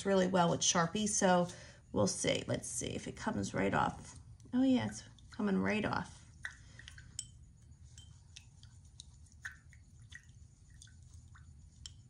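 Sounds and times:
glassy taps on glass jar: 7.1 - 8.2.

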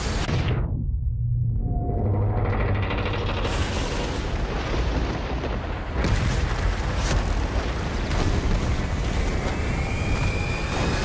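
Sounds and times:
film score: 0.0 - 11.0
loud rumble: 0.5 - 6.0.

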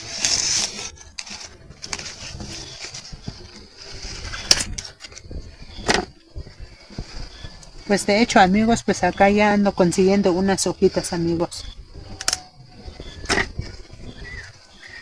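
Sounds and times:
rustling plants: 0.0 - 15.0
faint bird call: 11.6 - 15.0.

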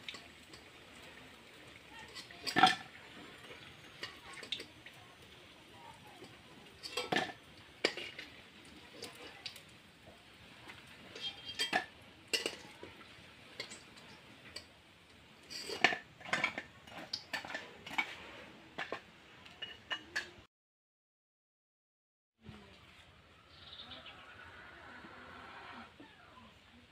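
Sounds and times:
metal spatula clinking and scraping: 1.9 - 4.8, 5.4 - 9.6, 10.8 - 14.7, 15.4 - 20.4.

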